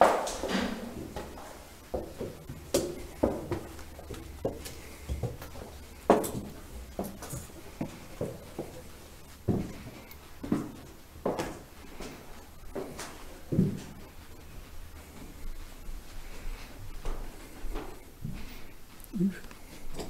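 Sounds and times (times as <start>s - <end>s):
footsteps on debris: 0.0s - 18.7s.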